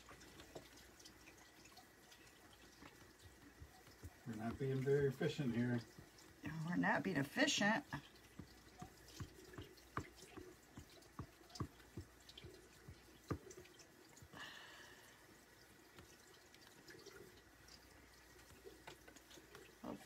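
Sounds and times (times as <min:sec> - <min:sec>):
faint light clicks and taps: 0:00.0 - 0:06.6.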